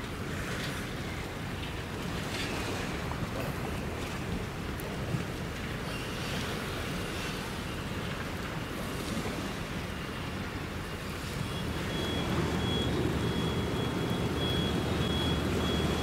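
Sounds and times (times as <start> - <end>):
low vehicle engine rumble: 11.4 - 16.0.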